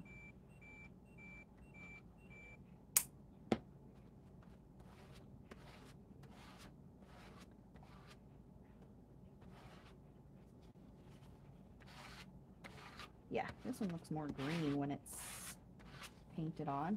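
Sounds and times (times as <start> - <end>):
hand rubbing over paper: 9.4 - 16.3.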